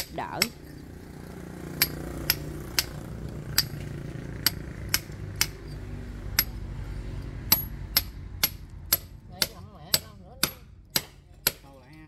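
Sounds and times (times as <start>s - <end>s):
hammer striking steel chisel: 1.8s - 3.0s, 3.6s - 3.8s, 4.4s - 5.8s, 6.4s - 6.6s, 7.5s - 11.7s.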